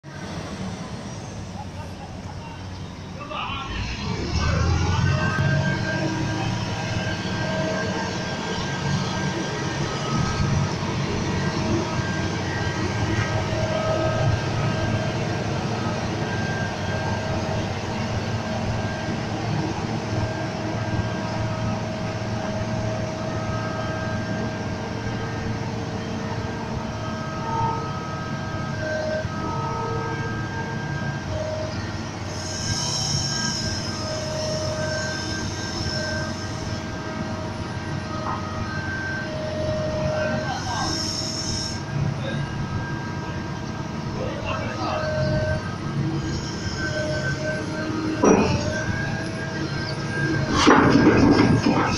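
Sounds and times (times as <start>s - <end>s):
excavator diesel engine running: 0.0s - 51.9s
hydraulic whining: 27.6s - 51.9s.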